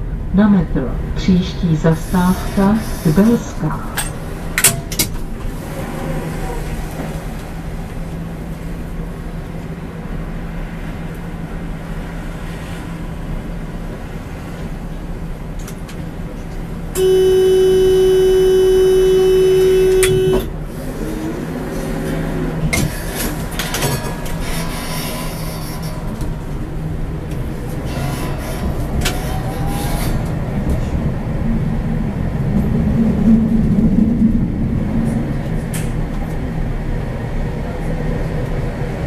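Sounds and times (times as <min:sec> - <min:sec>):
tram low hum: 0:00.0 - 0:39.0
loud tram warning horn: 0:17.0 - 0:20.7.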